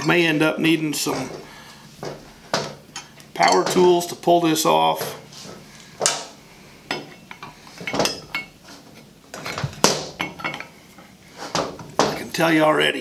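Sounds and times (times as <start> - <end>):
metal tools clinking on pulley: 6.9 - 8.6, 10.2 - 10.7.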